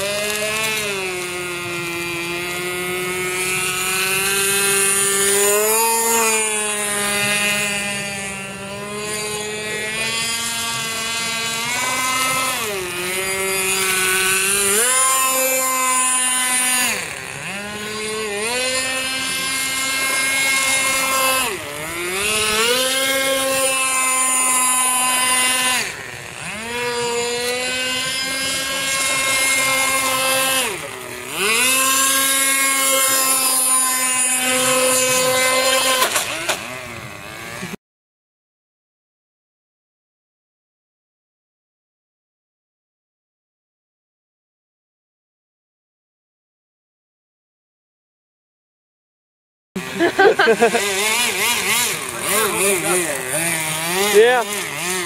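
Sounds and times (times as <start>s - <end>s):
model speedboat engine buzzing: 0.0s - 37.8s, 49.8s - 55.0s.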